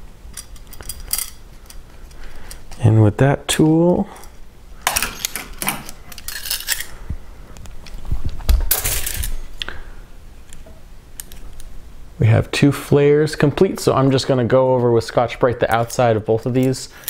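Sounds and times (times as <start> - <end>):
metal tools clinking and rattling: 0.3 - 1.8, 4.1 - 7.0, 8.7 - 9.4.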